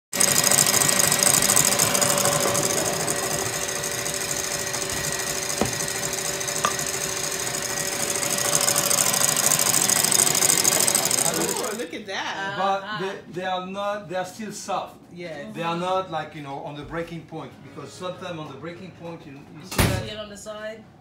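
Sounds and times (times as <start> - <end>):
stand mixer whisking: 0.1 - 11.8.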